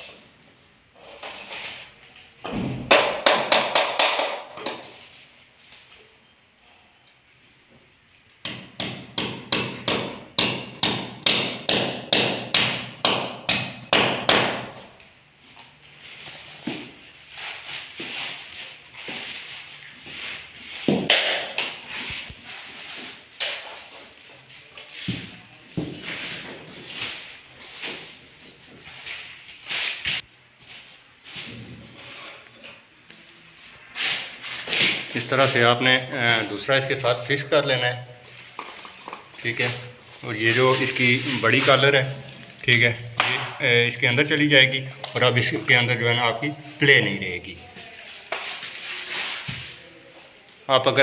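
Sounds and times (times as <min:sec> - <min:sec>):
panels scraping against a wall: 0:01.0 - 0:02.0, 0:31.3 - 0:32.8
hammer tapping nails: 0:08.4 - 0:14.7.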